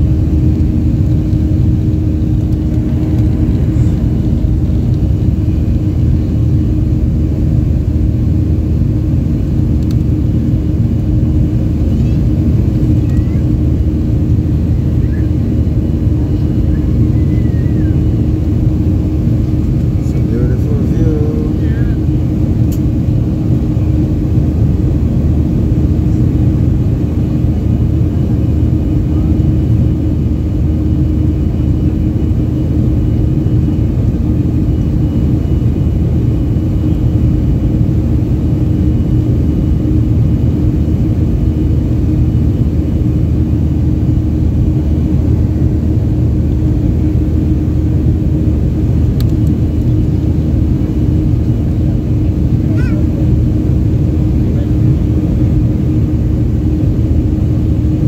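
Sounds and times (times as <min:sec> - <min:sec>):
jet engine rumble in cabin: 0:00.0 - 0:58.0.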